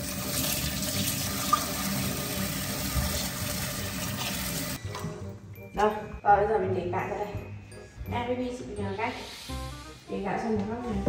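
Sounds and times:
tap water running into basin: 0.0s - 4.8s.

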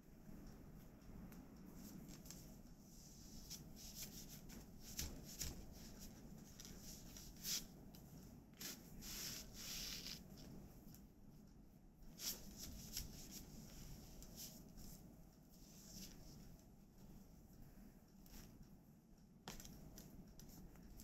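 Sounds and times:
rustling of fibre threads on loom: 1.6s - 10.5s, 12.1s - 17.1s.

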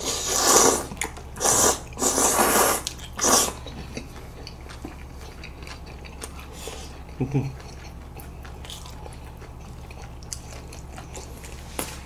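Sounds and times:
noodles being slurped: 0.0s - 4.0s.

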